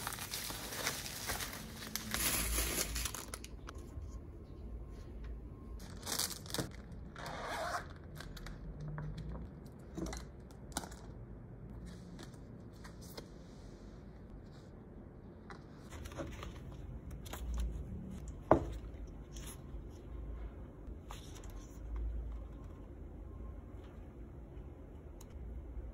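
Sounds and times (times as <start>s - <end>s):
pages leafed through: 0.0s - 3.6s
paper and plastic rustling: 0.0s - 3.7s, 5.8s - 6.9s.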